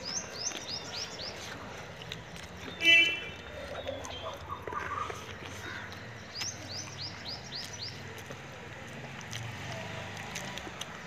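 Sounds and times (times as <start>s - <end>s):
bird chirping: 0.0s - 8.3s.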